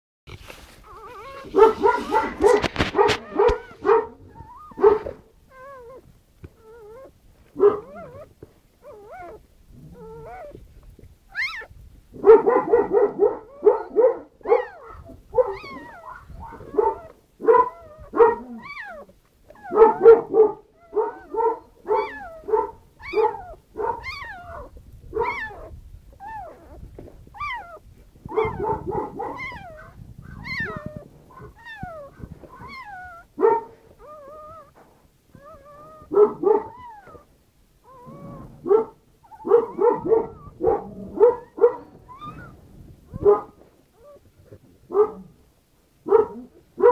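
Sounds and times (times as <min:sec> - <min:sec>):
rustling: 0:00.3 - 0:12.7, 0:14.7 - 0:46.9
puppy crying in high squeals: 0:00.8 - 0:04.8, 0:07.8 - 0:09.4, 0:11.3 - 0:11.7, 0:14.5 - 0:20.0, 0:20.8 - 0:28.6, 0:29.2 - 0:33.3, 0:35.4 - 0:38.5, 0:41.8 - 0:42.6.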